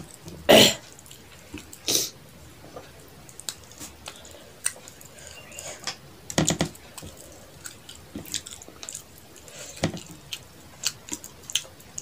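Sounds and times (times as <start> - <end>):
wet chewing and mouth smacks: 3.3 - 5.1, 6.9 - 12.0.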